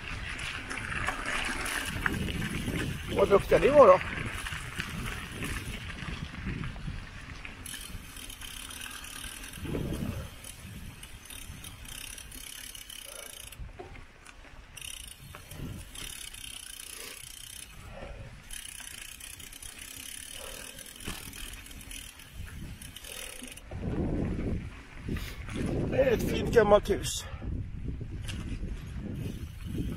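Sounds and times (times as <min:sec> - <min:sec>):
bike freewheel ticking: 0:01.0 - 0:06.6, 0:07.6 - 0:13.8, 0:14.7 - 0:23.8, 0:29.2 - 0:29.9.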